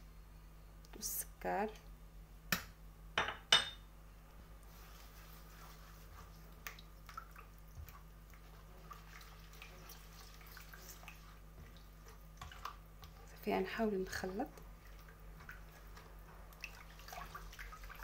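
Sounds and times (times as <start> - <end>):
hand mixing wet batter: 4.3 - 18.0.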